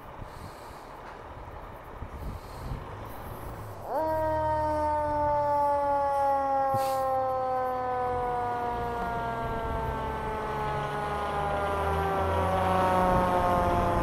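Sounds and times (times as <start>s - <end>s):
engine motor rumble: 0.0s - 14.0s
fire engine siren: 3.1s - 14.0s.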